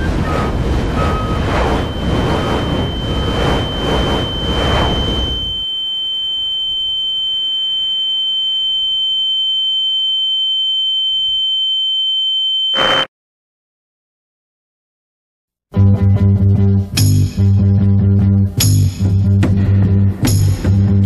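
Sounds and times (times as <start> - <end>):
rushing noise: 0.0 - 5.6
steady high-pitched tone: 0.0 - 8.3, 12.6 - 13.1.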